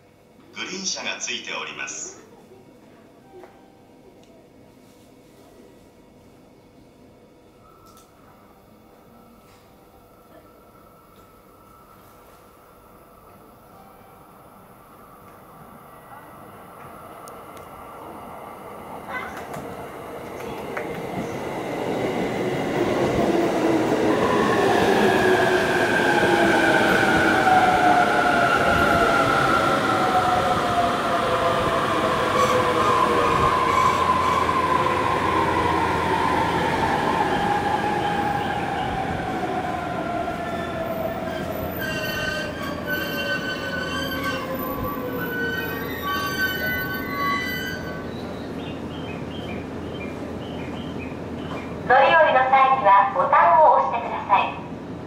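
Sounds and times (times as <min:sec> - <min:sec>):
train wheels rumbling on rail: 0:18.7 - 0:52.3.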